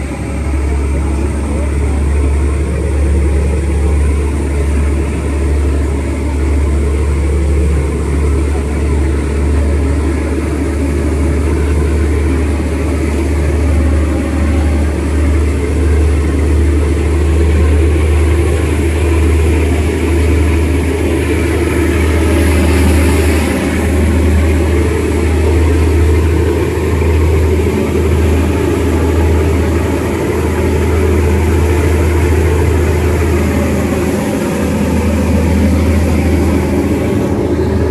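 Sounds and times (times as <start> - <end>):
boat engine humming: 0.0 - 37.9
water rushing along hull: 0.0 - 37.9.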